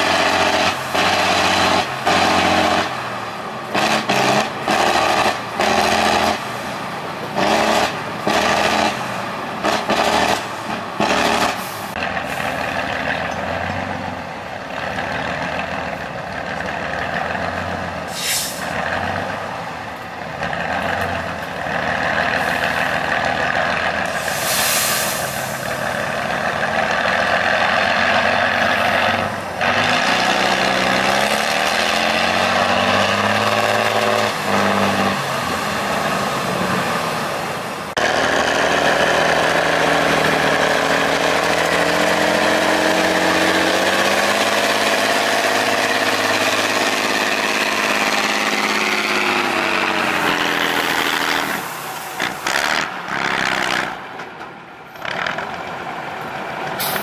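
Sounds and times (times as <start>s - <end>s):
truck diesel engine revving: 0.0s - 57.0s
air brake hiss: 18.1s - 18.7s, 24.1s - 25.6s, 56.8s - 57.0s.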